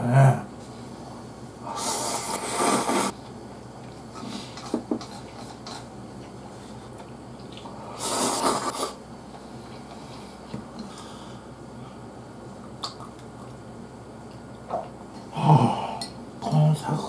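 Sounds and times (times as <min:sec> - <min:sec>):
person slurping noodles: 0:01.7 - 0:03.1, 0:07.9 - 0:09.0.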